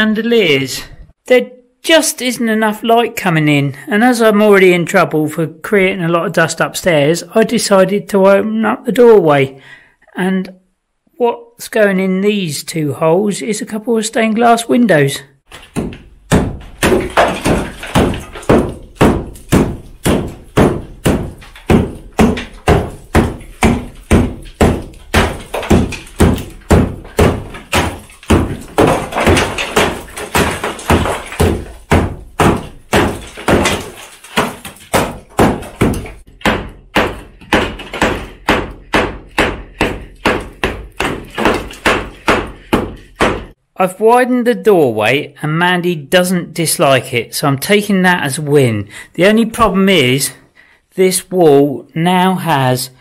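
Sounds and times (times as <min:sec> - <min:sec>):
hammer striking brick wall: 0:15.5 - 0:43.6.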